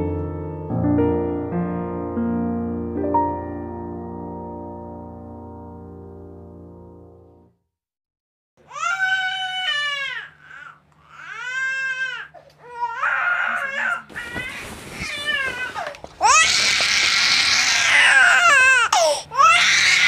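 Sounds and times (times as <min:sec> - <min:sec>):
baby crying: 0:08.6 - 0:20.0.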